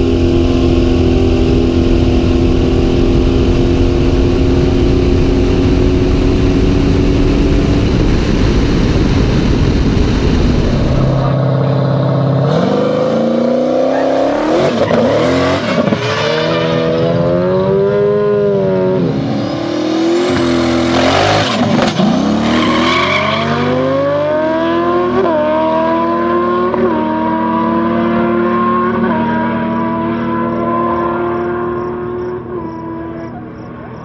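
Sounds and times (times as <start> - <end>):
motorcycle engine revving: 0.0 - 22.8, 23.4 - 34.0
car engine revving: 0.0 - 34.0.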